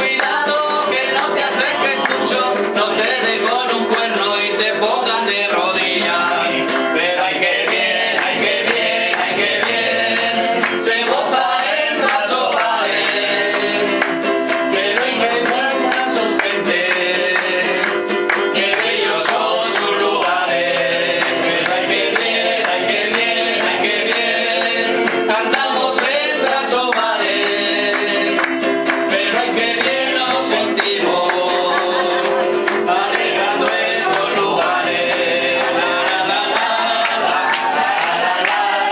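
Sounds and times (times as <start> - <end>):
person singing: 0.0 - 38.9
strummed guitar: 0.0 - 38.9.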